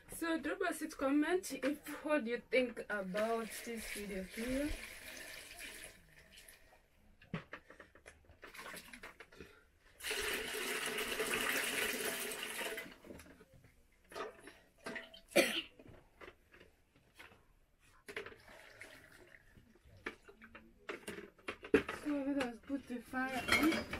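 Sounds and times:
water poured into metal bowl: 3.4 - 6.7, 10.0 - 13.0, 18.3 - 19.7.

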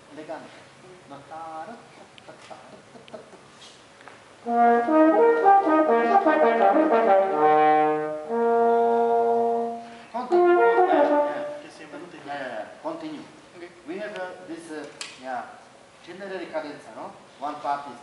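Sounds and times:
solo french horn: 4.4 - 11.7.

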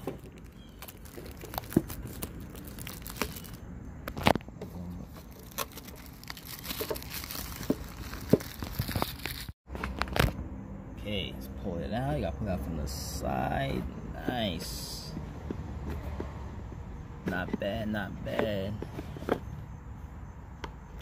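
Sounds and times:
plastic shrink wrap crinkling: 0.0 - 4.4, 5.2 - 10.2.

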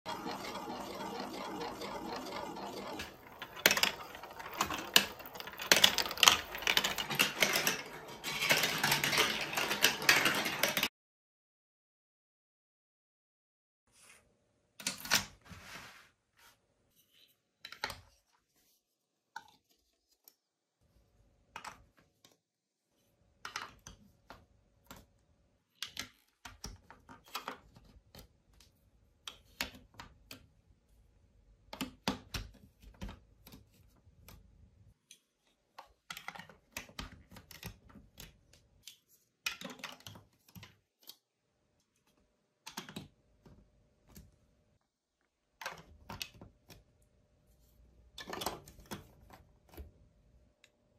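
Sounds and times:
plastic blocks clicking and clattering: 0.1 - 10.9, 25.7 - 30.6, 35.1 - 41.3, 42.0 - 44.3, 48.1 - 49.9.

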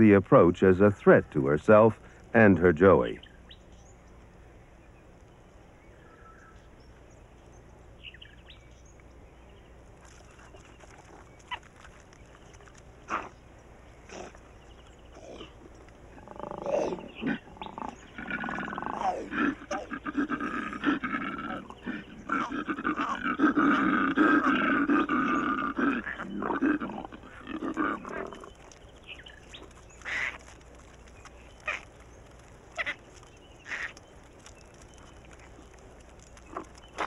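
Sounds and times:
koala calling harshly: 32.8 - 33.0.

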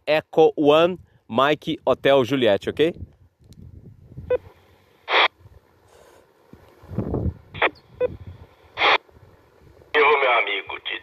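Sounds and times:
radio squelch hiss: 4.4 - 5.3, 7.5 - 7.9, 8.5 - 9.1, 9.9 - 11.0.

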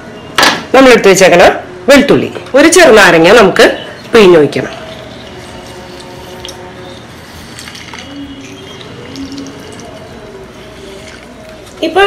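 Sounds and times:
soft background music: 0.0 - 12.0
juice trickling into metal jar: 3.9 - 12.0.

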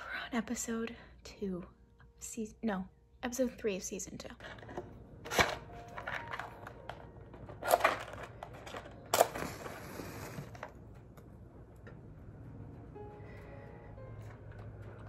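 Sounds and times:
match scraping on box: 9.2 - 10.7
match flaring with a hiss: 9.3 - 10.8.

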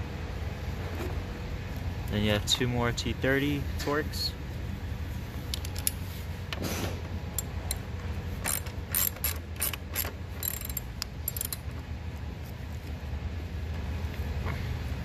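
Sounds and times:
hand ratchet clicking: 8.4 - 11.6.

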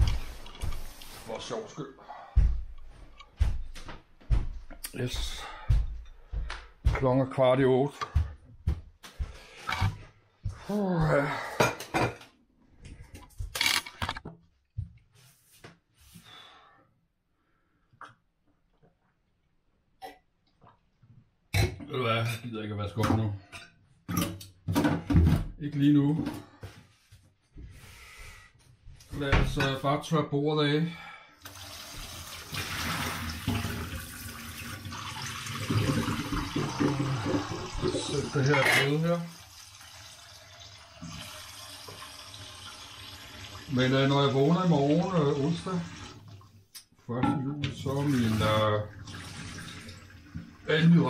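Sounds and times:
tap water running into pan: 31.4 - 46.4, 48.0 - 50.8.

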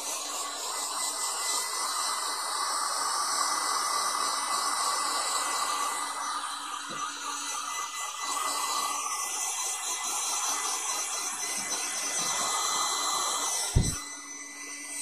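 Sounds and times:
hair dryer blowing: 0.0 - 15.0
short thump: 13.8 - 14.0.

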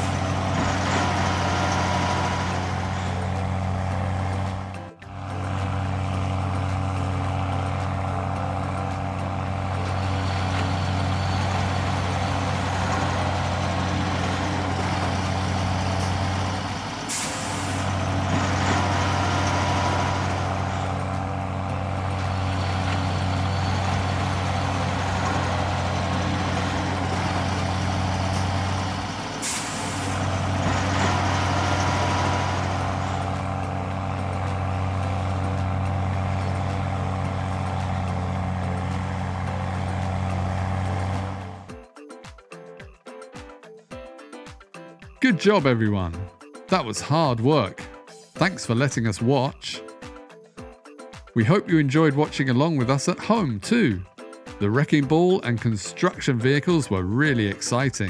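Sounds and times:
diesel truck engine running: 0.0 - 41.7
air brake hiss: 17.1 - 17.8, 29.4 - 30.2.

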